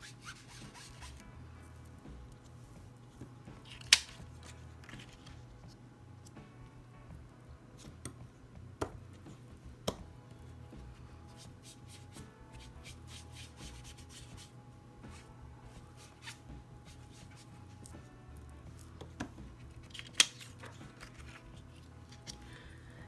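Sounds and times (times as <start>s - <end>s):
foam sponge rubbing on cardstock: 0.0s - 1.2s, 11.3s - 14.5s.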